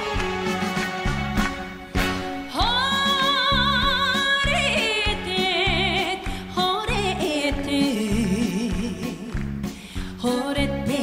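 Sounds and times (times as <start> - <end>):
orchestra playing: 0.0 - 3.8
woman singing with vibrato: 2.4 - 9.4, 10.2 - 11.0.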